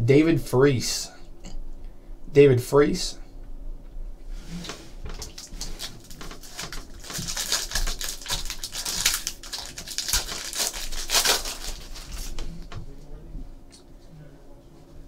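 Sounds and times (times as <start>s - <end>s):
foil wrapper crinkling: 5.1s - 12.8s.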